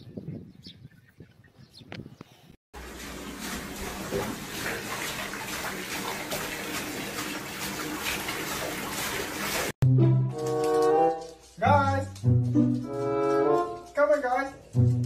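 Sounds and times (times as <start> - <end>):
water pouring into bathtub: 2.8 - 9.8
brass music: 9.8 - 14.0, 14.6 - 15.0.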